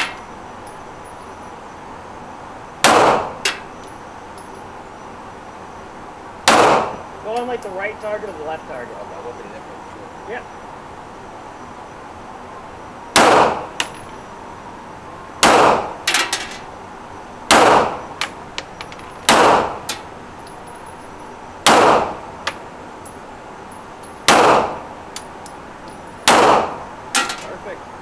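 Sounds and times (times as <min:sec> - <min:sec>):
pistol shots echoing: 0:02.8 - 0:03.4, 0:06.4 - 0:07.0, 0:13.2 - 0:13.9, 0:15.4 - 0:16.0, 0:17.5 - 0:18.0, 0:19.3 - 0:19.9, 0:21.6 - 0:22.2, 0:24.3 - 0:24.8, 0:26.2 - 0:26.8.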